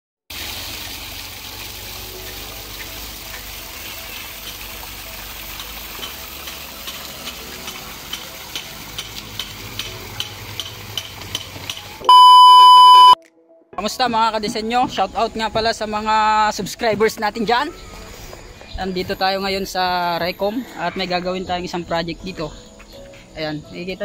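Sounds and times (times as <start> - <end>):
waterfall splashing over stones: 0.3 - 12.0.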